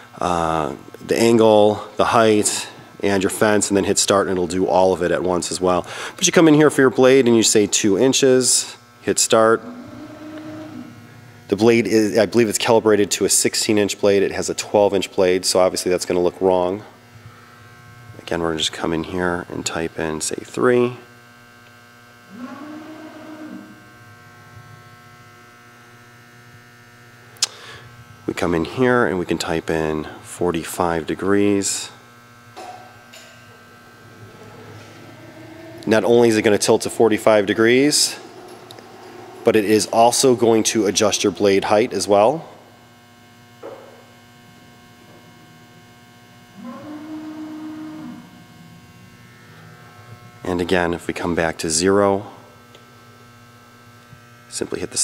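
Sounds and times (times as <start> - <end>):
table saw humming: 9.0 - 12.1, 22.2 - 30.0, 33.0 - 42.9, 44.8 - 51.9
motor whine rising and falling: 9.1 - 12.1, 22.2 - 25.1, 33.5 - 42.4, 44.6 - 51.0.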